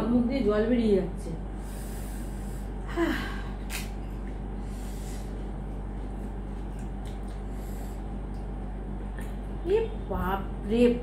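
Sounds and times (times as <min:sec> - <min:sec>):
steady low hum: 0:00.0 - 0:11.0
soft breath: 0:01.6 - 0:03.5, 0:04.6 - 0:05.4, 0:07.4 - 0:08.1.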